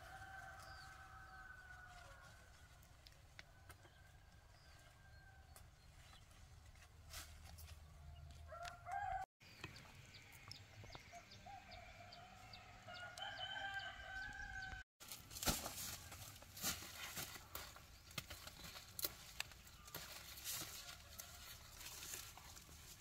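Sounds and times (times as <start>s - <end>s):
rooster crowing: 0.0s - 2.3s, 8.5s - 9.3s, 11.5s - 14.8s.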